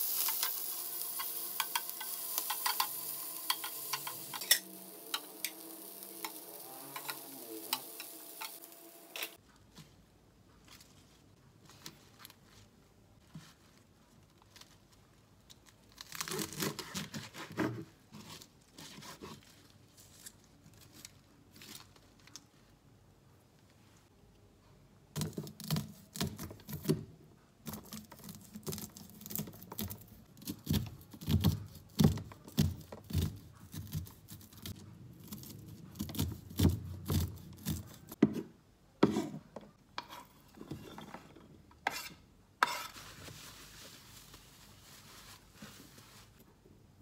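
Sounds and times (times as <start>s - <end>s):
knife cutting on a board: 35.3s - 39.4s, 41.8s - 43.0s.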